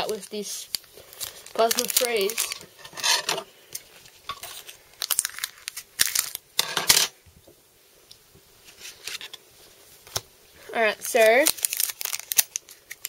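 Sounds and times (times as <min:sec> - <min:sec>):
foil wrapper crinkling: 0:00.0 - 0:03.0, 0:03.7 - 0:06.6, 0:10.8 - 0:13.0.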